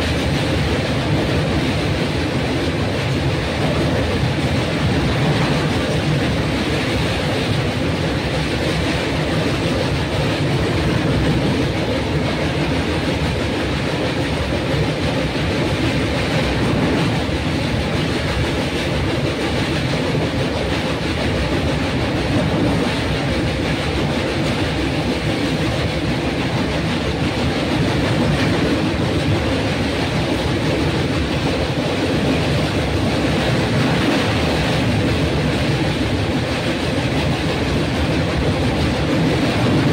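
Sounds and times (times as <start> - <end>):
train running: 0.0 - 39.9.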